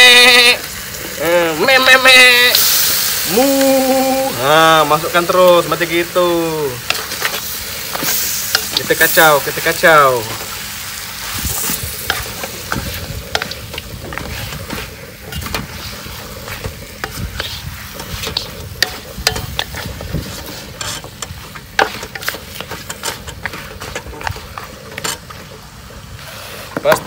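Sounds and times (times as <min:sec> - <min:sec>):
meat sizzling in a wok: 0:00.0 - 0:27.0
wooden spatula scraping wok: 0:02.5 - 0:27.0.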